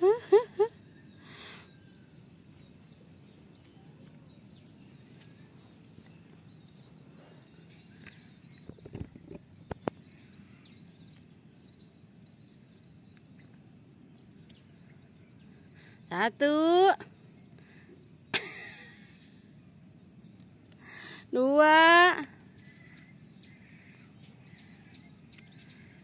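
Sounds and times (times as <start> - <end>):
faint outdoor ambience: 0.0 - 26.0
small bird chirps: 0.3 - 16.1, 22.2 - 26.0.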